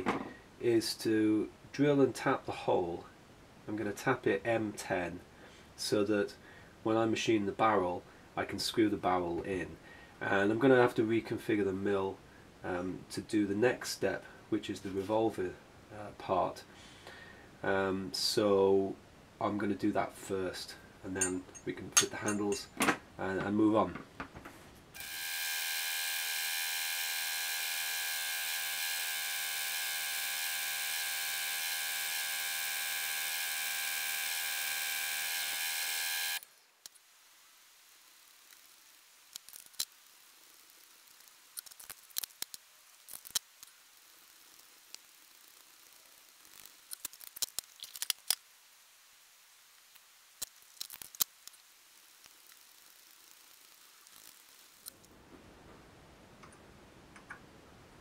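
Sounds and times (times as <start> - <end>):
drill boring into metal: 25.0 - 36.4
milling spindle whining: 25.0 - 36.4.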